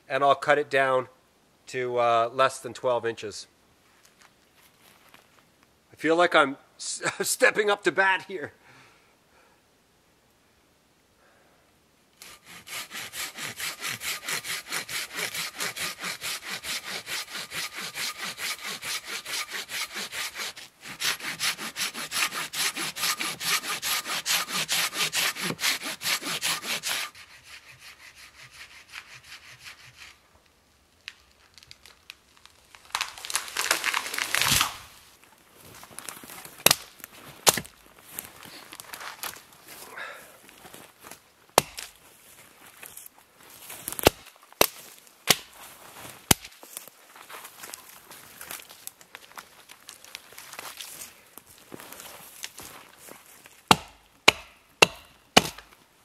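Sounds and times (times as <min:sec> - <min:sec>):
hand saw rasping through wood: 0:12.2 - 0:30.2, 0:53.7 - 0:55.6
sharp cracks and knocks: 0:31.0 - 0:34.8, 0:36.6 - 0:37.8, 0:41.6 - 0:42.0, 0:43.9 - 0:45.6, 0:46.3 - 0:46.9, 0:53.7 - 0:55.8
tree cracking and falling: 0:31.0 - 0:35.0.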